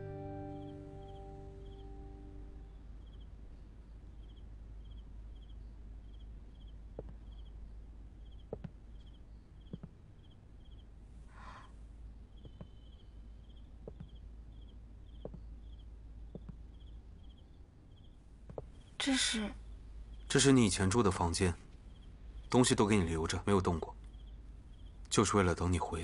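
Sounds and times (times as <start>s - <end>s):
crickets chirping: 0.1s - 26.0s
soft taps: 7.0s - 7.2s, 8.5s - 8.8s, 9.7s - 10.0s, 13.8s - 14.2s, 15.2s - 15.5s, 16.3s - 16.6s, 18.5s - 18.8s.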